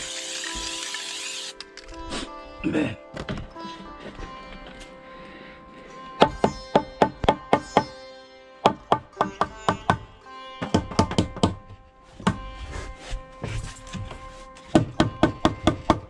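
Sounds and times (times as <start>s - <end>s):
hammer striking nails: 10.6s - 11.6s, 14.7s - 16.0s.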